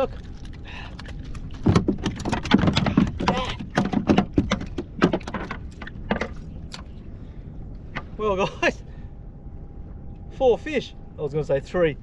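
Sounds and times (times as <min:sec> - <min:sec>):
low rumble: 0:00.0 - 0:12.0.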